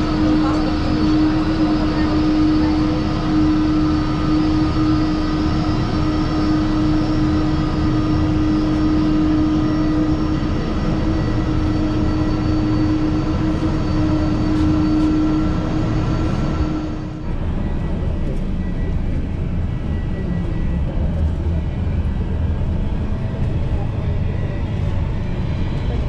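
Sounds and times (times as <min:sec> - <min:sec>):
high engine whine: 0:00.0 - 0:26.0
jet engines taxiing: 0:00.0 - 0:26.0.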